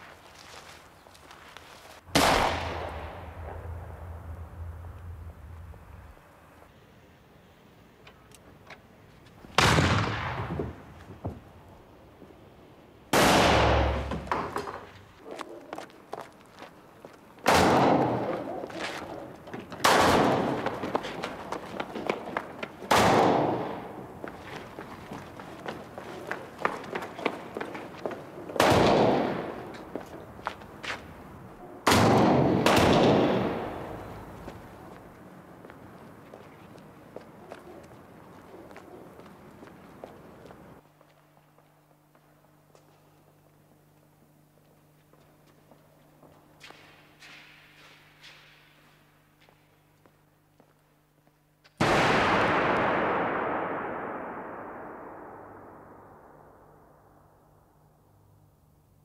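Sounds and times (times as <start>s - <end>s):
shotgun blasts: 2.1s - 3.6s, 9.6s - 10.8s, 13.1s - 14.6s, 17.5s - 18.3s, 19.8s - 20.8s, 22.9s - 24.0s, 28.6s - 29.7s, 31.8s - 34.3s, 51.8s - 56.3s.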